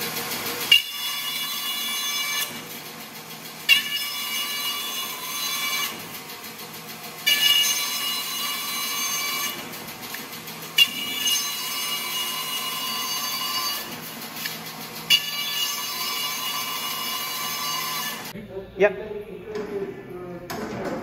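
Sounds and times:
band saw humming: 0.0s - 20.6s
saw blade ringing whine: 0.7s - 2.7s, 3.6s - 6.1s, 7.2s - 9.7s, 10.8s - 14.1s, 15.1s - 18.3s.

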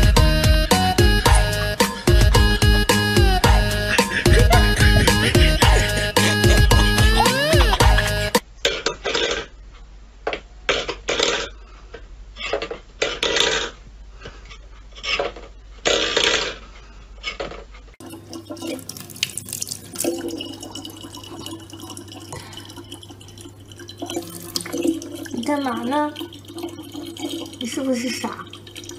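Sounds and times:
water trickling into plastic bottle: 18.0s - 28.9s.

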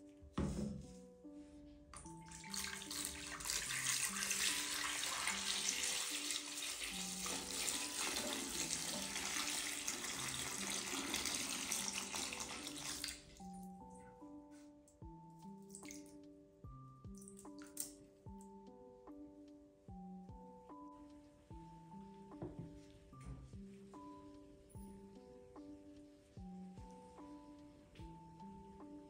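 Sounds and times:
water running from tap: 2.1s - 13.4s.

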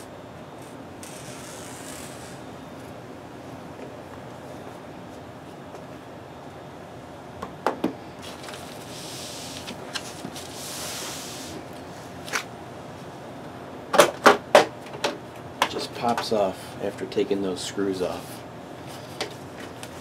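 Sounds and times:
short rubbing sound: 1.0s - 2.4s, 10.4s - 11.6s.

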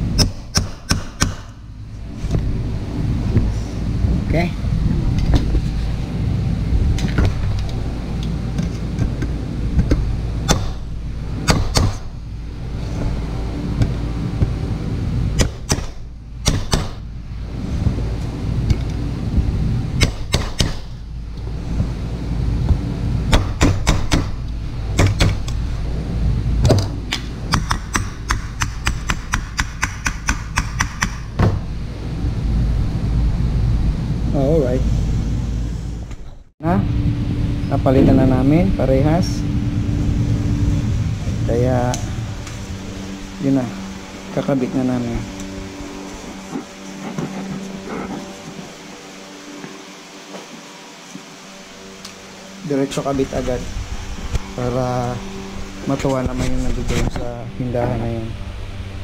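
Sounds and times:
steady low hum: 0.0s - 59.0s
knocks on metal: 15.4s - 17.0s, 23.3s - 24.4s.

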